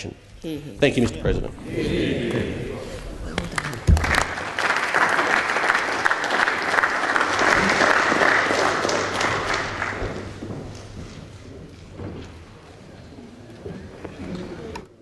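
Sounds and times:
people applauding: 3.0s - 10.5s.

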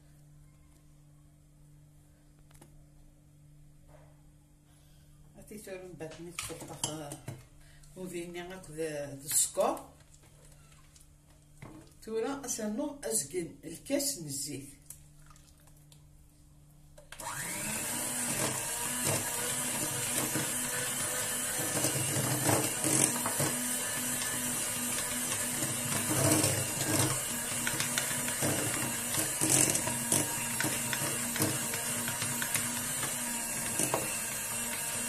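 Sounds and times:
electric hand mixer whining: 17.2s - 35.0s.

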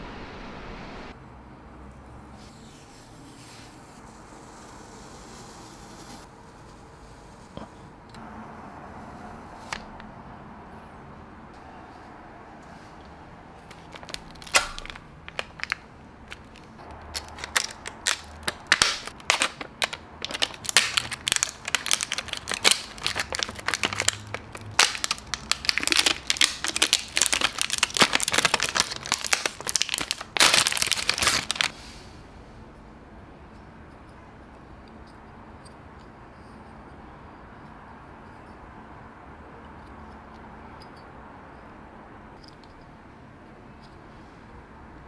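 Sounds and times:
plastic wrap crinkling: 13.6s - 31.8s.

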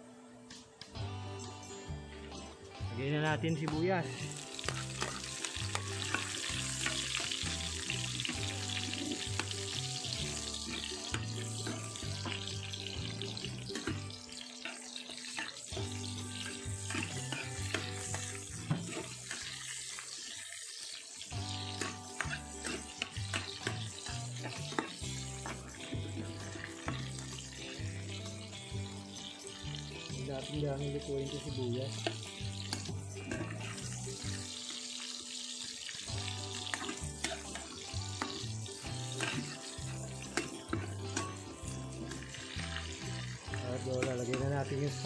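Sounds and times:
background music with bass: 0.0s - 14.3s, 15.8s - 19.8s, 21.3s - 34.5s, 36.1s - 45.0s
food sizzling in oil: 3.4s - 45.0s
metal spatula stirring: 4.4s - 30.6s, 31.2s - 34.9s, 36.6s - 45.0s.

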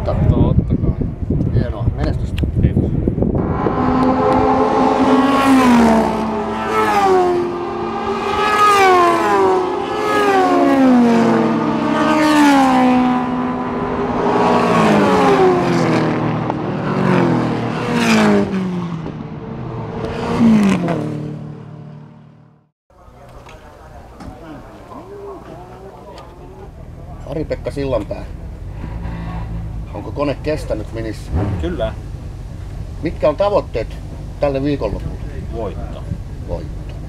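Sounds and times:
race cars passing: 3.0s - 22.4s, 24.3s - 32.9s.

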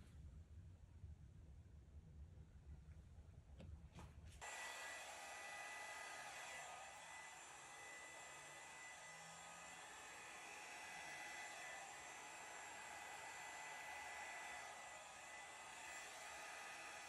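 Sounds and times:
hair dryer blowing: 4.4s - 17.0s.

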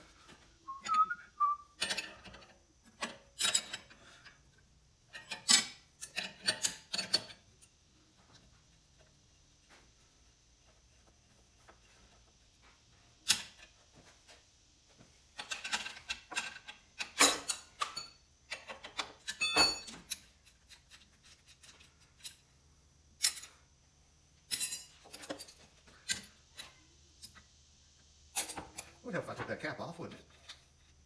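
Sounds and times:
metal clinks and rattles: 19.2s - 20.4s, 24.5s - 26.7s.

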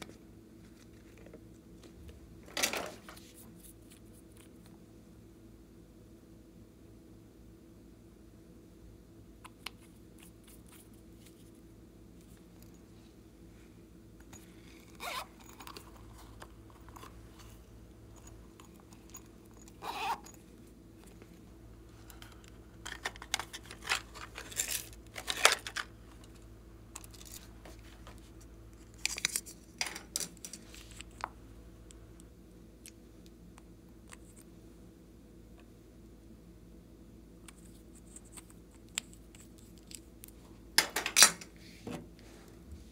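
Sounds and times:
plastic toys clicking and rustling: 22.1s - 26.4s.

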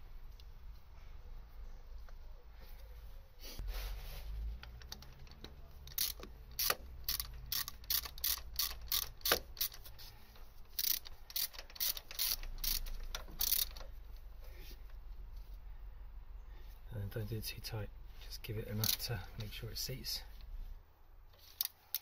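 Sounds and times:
ratchet wrench clicking: 4.8s - 9.9s, 10.6s - 14.0s, 18.8s - 19.1s, 21.5s - 22.0s.

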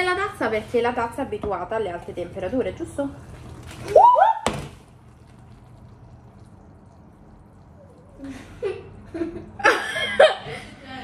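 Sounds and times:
faint liquid pouring: 4.6s - 8.8s.

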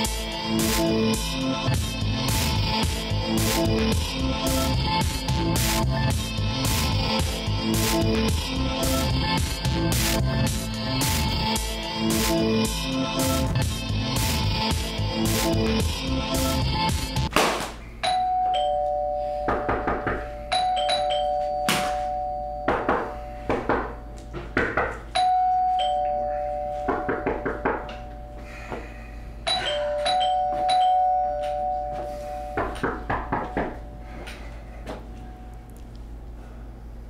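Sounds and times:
two-tone doorbell chime: 18.0s - 19.6s, 20.5s - 23.2s, 25.2s - 27.1s, 29.5s - 32.6s.

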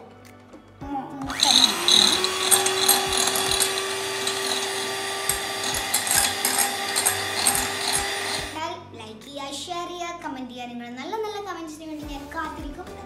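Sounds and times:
electric hand mixer whisking: 1.3s - 8.6s.

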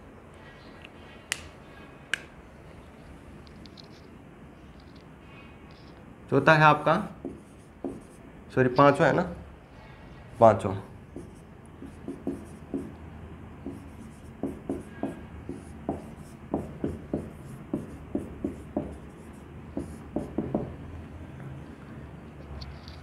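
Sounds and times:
writing on a board: 7.1s - 8.2s, 11.1s - 13.0s, 13.6s - 20.8s.

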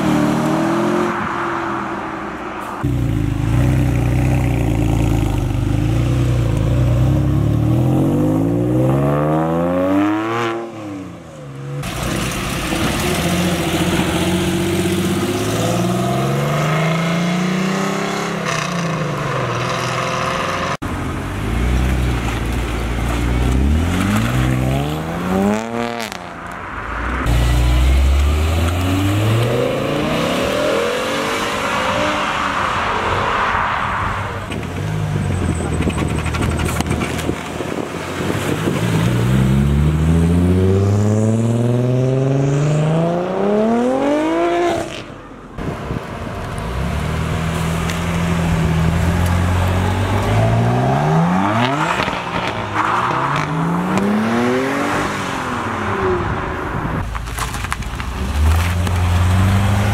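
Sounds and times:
roadster passing: 0.0s - 59.9s
sports car accelerating hard: 38.1s - 45.1s, 46.8s - 57.0s.

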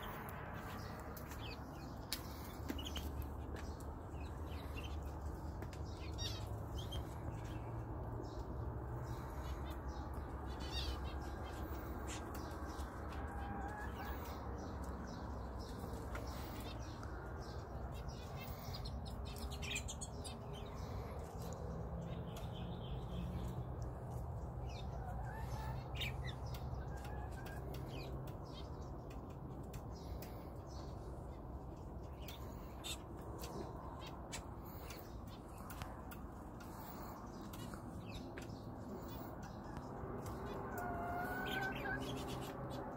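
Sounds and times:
canaries chirping: 0.0s - 42.9s.

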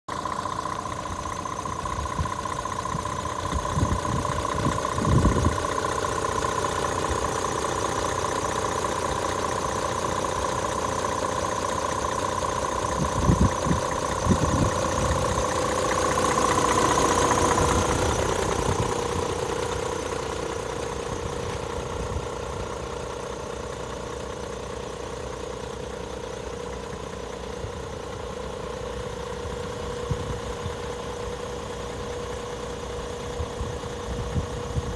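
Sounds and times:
diesel truck engine idling: 0.1s - 34.9s.

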